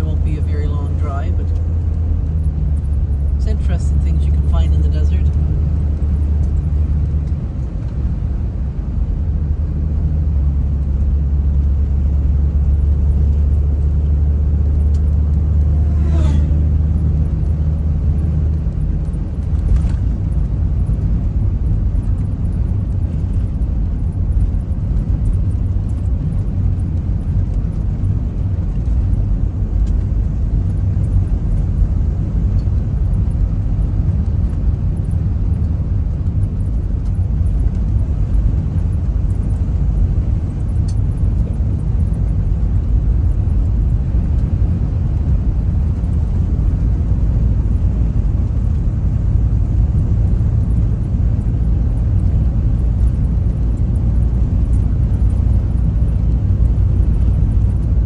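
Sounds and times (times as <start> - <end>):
car engine and tyre drone: 0.0 - 58.0.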